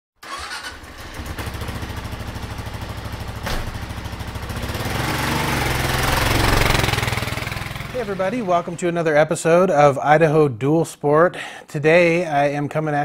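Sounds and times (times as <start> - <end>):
motorcycle engine running: 0.4 - 8.8.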